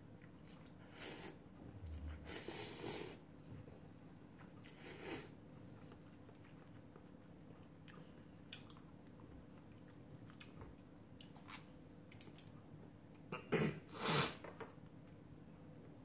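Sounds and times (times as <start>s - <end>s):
quiet chewing: 0.0s - 3.0s, 4.3s - 13.3s.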